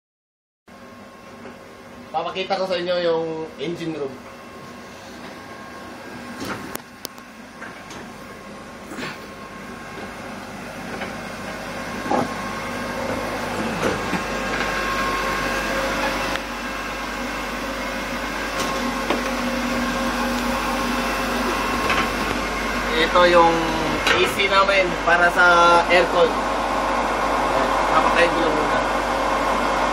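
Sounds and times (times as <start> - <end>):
machinery humming: 0.8 - 29.9.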